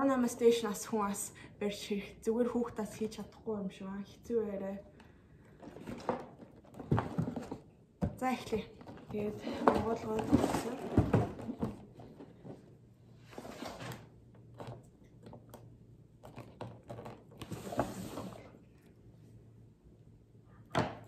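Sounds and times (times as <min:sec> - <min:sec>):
cardboard and plastic rustling: 0:05.6 - 0:07.8, 0:08.4 - 0:14.8.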